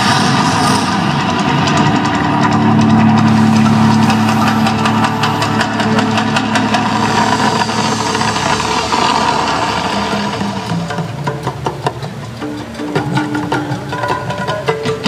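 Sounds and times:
loud low rumble: 0.0 - 10.9.

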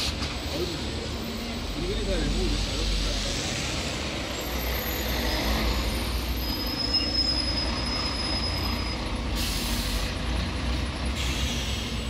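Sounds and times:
traffic engine rumble: 0.0 - 12.0
high-pitched brake squeal: 0.5 - 10.2, 11.0 - 12.0.

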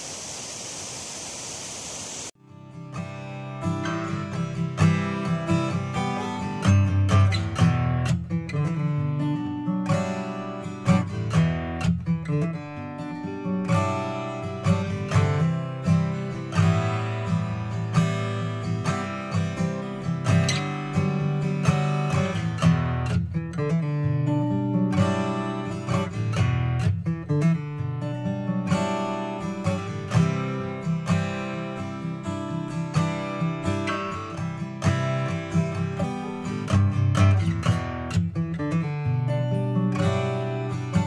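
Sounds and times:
strummed acoustic guitar music: 2.4 - 41.0.

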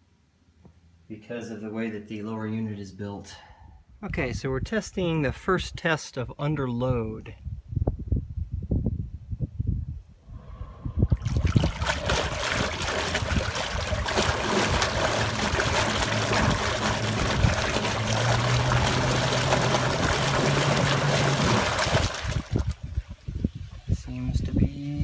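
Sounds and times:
low motor hum: 10.2 - 23.0
propeller splashing and bubbling water: 11.0 - 23.9.

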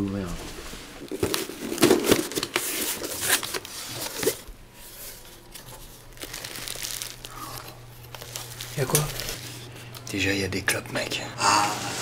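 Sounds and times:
paper and packaging rustling: 0.1 - 10.0
cardboard parcel tearing: 1.0 - 9.5.

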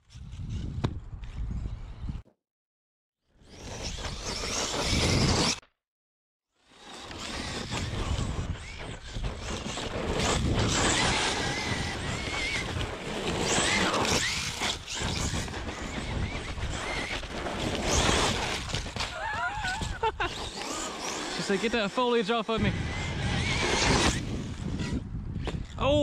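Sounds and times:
electric drivetrain running hard: 6.7 - 25.0
steady rushing noise: 20.7 - 25.1.

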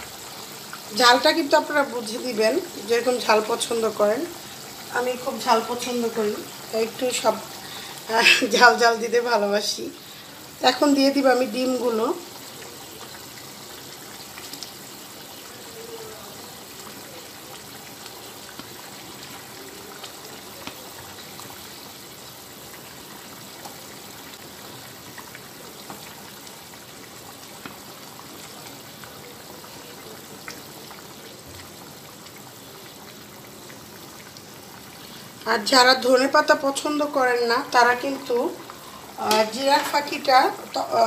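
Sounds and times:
curry bubbling in a pan: 0.0 - 41.0.

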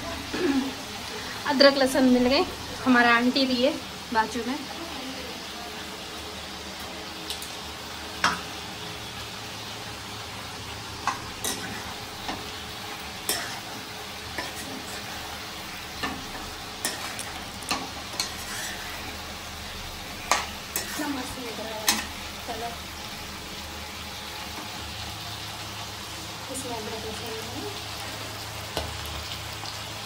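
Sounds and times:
food sizzling in a pan: 0.0 - 30.0
spatula scraping a pan: 11.1 - 19.3, 20.2 - 22.1.

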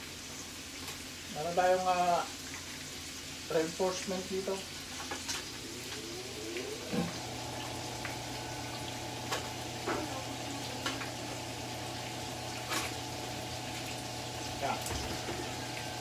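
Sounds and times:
meat and onion sizzling in pan: 0.0 - 16.0
steady low hum: 5.4 - 16.0.

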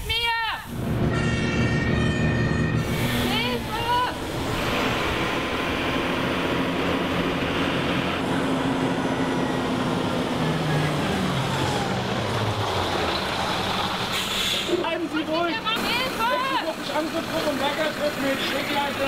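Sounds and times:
steady rushing noise: 0.6 - 1.7, 2.6 - 10.6
fire engine diesel engine: 0.6 - 19.0.

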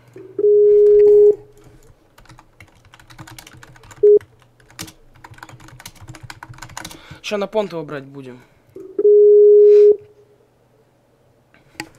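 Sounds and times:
computer call beeps: 0.4 - 1.5, 4.0 - 4.2, 8.9 - 10.0
keyboard typing clicks: 2.2 - 7.0.

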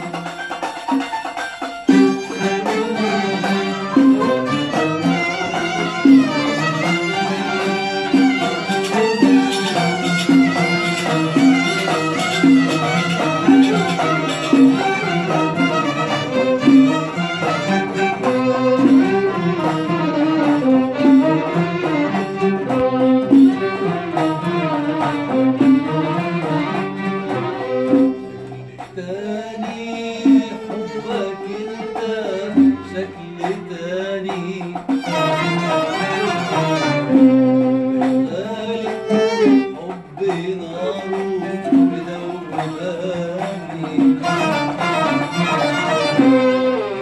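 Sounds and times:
oud plucked: 0.0 - 47.0
man singing: 1.9 - 19.8, 28.0 - 47.0.

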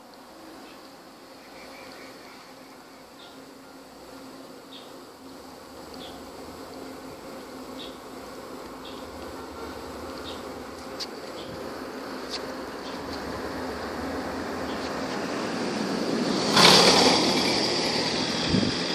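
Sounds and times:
low buzzing hum: 0.0 - 18.9
train rumbling: 13.1 - 18.9.

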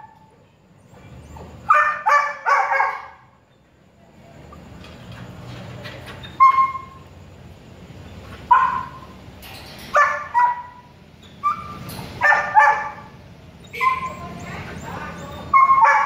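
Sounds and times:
puppies yelping and barking: 6.1 - 7.0, 9.9 - 16.0.

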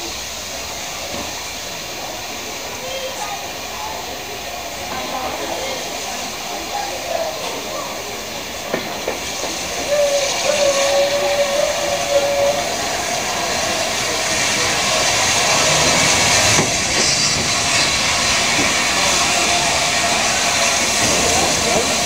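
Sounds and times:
steam locomotive hissing and running: 0.0 - 22.0
steam whistle: 9.8 - 13.8.

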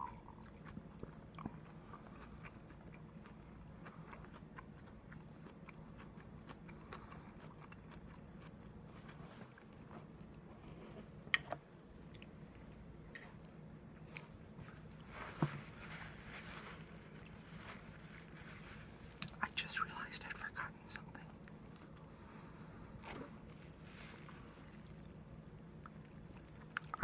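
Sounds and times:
person chewing food: 0.0 - 15.1, 23.1 - 27.0
low steady hum: 0.0 - 27.0.

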